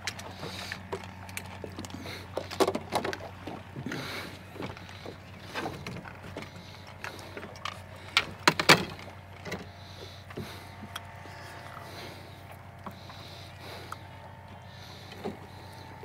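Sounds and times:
steady low hum: 0:00.0 - 0:16.0
fishing gear knocking and clattering: 0:00.2 - 0:04.0, 0:04.6 - 0:09.7.

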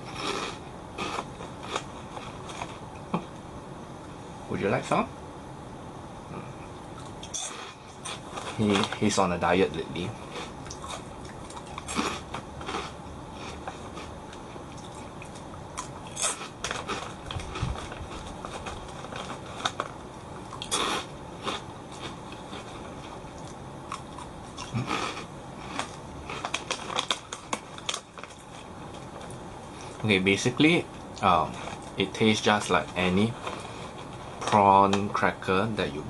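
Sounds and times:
person chewing crisp crackers: 0:00.0 - 0:02.9, 0:06.4 - 0:09.1, 0:10.1 - 0:30.0
foil snack bag crinkling: 0:16.1 - 0:20.0, 0:24.7 - 0:28.7.

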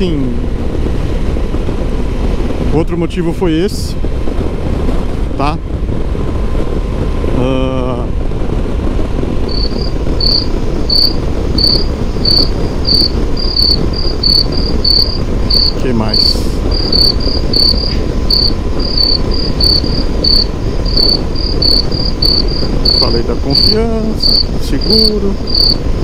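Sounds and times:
wind and road noise rumble: 0:00.0 - 0:26.0
cricket chirping: 0:09.5 - 0:26.0.

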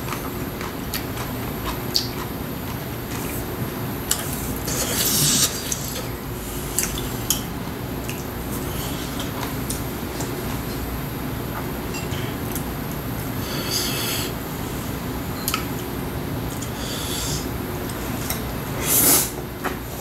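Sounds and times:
chewing: 0:00.0 - 0:06.1
steady low hum: 0:00.0 - 0:20.0.

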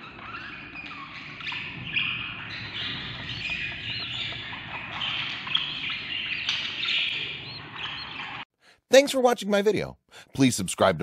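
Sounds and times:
parakeet chicks chirping: 0:00.0 - 0:08.5.

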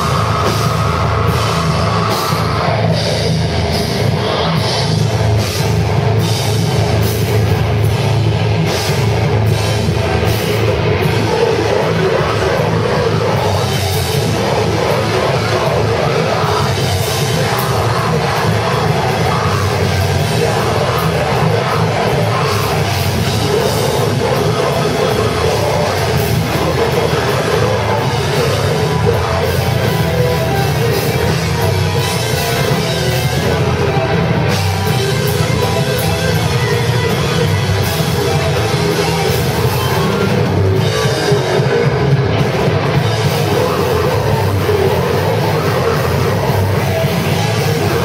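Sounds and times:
drum kit: 0:00.0 - 0:48.0
electric guitar: 0:00.0 - 0:48.0
vocalist singing into microphone: 0:10.9 - 0:31.4, 0:42.9 - 0:48.0.

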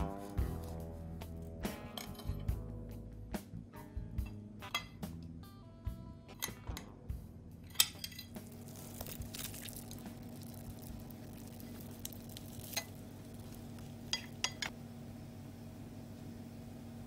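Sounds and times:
cutlery clinking on ceramic plate: 0:01.9 - 0:02.5, 0:07.7 - 0:08.4, 0:14.1 - 0:14.7.

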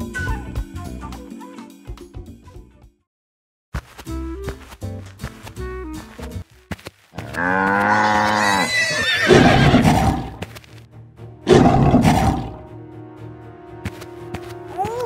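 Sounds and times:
background music: 0:00.0 - 0:03.0, 0:04.1 - 0:15.0
lion roaring: 0:07.3 - 0:10.4, 0:11.5 - 0:12.6.

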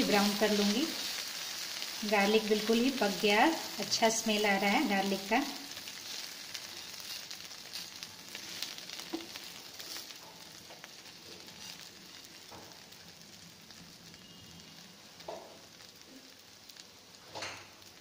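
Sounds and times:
butter sizzling in a pan: 0:00.0 - 0:18.0
metal spatula scraping a pan: 0:06.0 - 0:10.3, 0:11.3 - 0:12.0.

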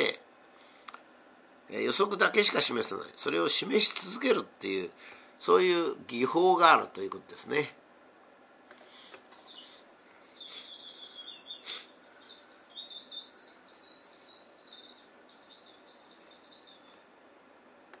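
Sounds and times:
skylark song: 0:09.3 - 0:17.2.

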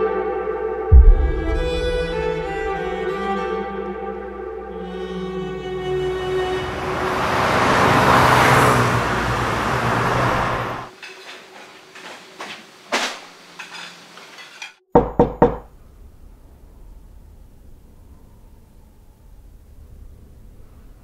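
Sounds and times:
loud rushing swell with held tones: 0:00.9 - 0:03.7
kitchen utensils clinking: 0:10.9 - 0:14.8
knocking on wooden door: 0:15.0 - 0:15.7.

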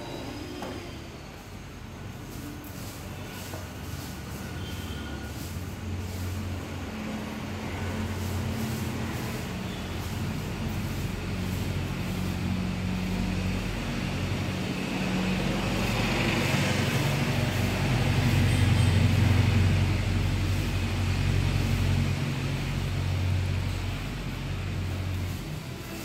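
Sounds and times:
vehicle engine humming: 0:00.0 - 0:26.0.

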